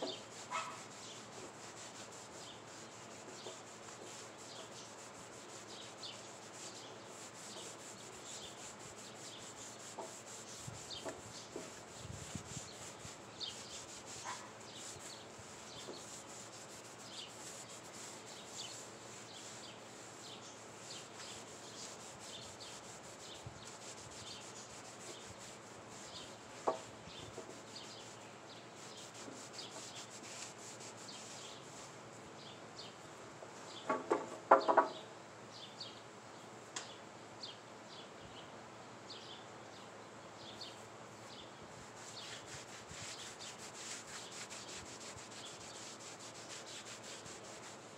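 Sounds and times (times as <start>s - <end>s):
hand rubbing wooden board: 0.0s - 28.2s, 28.8s - 31.9s, 41.8s - 47.9s.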